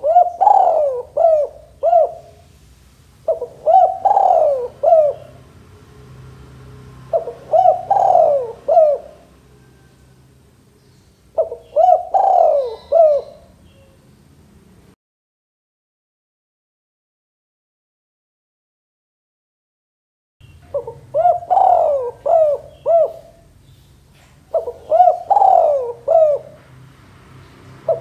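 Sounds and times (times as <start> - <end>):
dove cooing: 0.0 - 2.5, 3.2 - 5.5, 7.0 - 10.1, 11.3 - 14.0, 20.7 - 23.6, 24.4 - 26.7.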